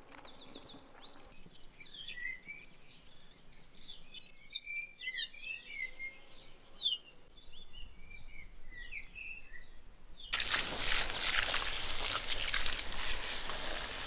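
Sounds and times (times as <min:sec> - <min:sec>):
songbirds chirping: 0:00.0 - 0:14.0
rush of pouring water: 0:10.4 - 0:14.0.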